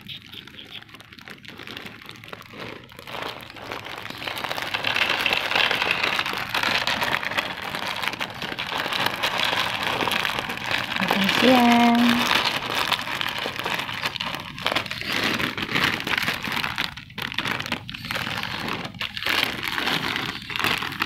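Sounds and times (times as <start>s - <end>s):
plastic bag crinkling: 0.0s - 21.0s.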